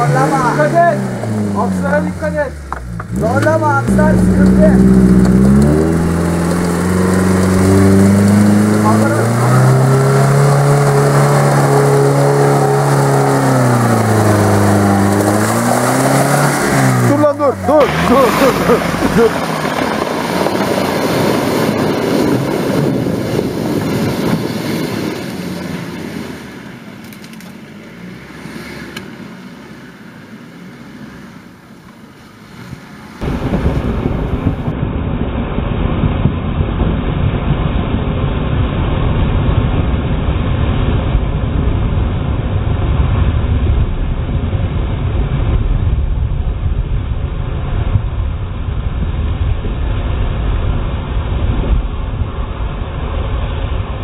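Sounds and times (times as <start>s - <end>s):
low rumble: 0.0s - 26.8s, 33.2s - 54.0s
engine running under load: 0.0s - 31.6s
tyres churning through mud: 0.0s - 34.7s.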